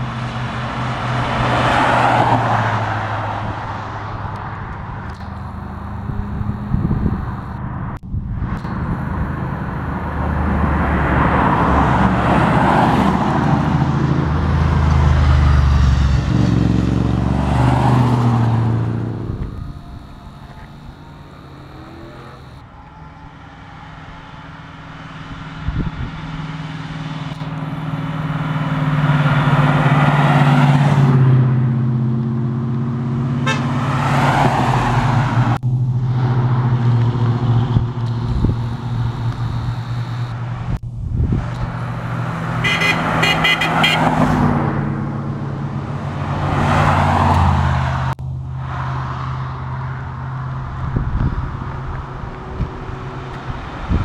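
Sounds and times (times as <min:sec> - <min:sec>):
muscle cars driving past: 0:00.0 - 0:54.0
car horn blasts: 0:04.3 - 0:07.7, 0:08.6 - 0:12.3, 0:17.8 - 0:25.9, 0:33.4 - 0:34.0, 0:38.0 - 0:40.8, 0:41.5 - 0:44.4.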